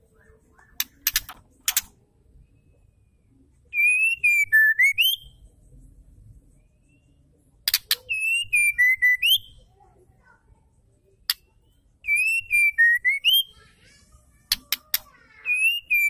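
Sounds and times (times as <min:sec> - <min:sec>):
bird clicking notes: 0:00.8 - 0:01.9, 0:14.5 - 0:15.1
bird whistled song: 0:03.7 - 0:05.4, 0:06.6 - 0:09.7, 0:11.3 - 0:13.6, 0:15.4 - 0:16.0.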